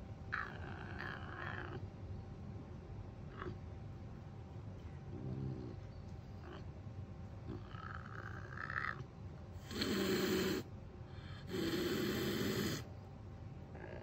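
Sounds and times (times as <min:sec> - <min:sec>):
caracal hissing: 0:09.6 - 0:12.9.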